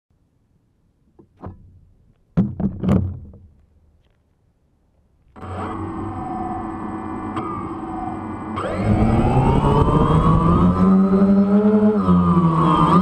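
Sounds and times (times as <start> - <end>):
knocks and thuds from handling: 1.2 - 3.6
quadcopter propellers humming: 5.4 - 13.0.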